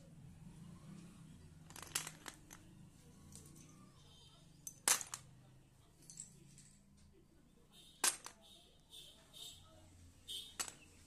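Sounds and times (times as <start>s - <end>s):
chalk sticks clattering on metal: 1.6s - 2.7s, 4.5s - 5.3s, 8.0s - 8.5s, 10.4s - 11.0s.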